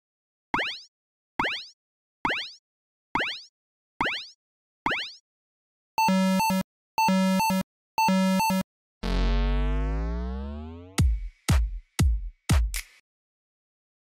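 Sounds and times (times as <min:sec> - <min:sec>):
synth blip falling in pitch: 0:08.2 - 0:11.0
buzzy synth tones: 0:09.0 - 0:11.0
synth power-down sweep: 0:09.0 - 0:11.0.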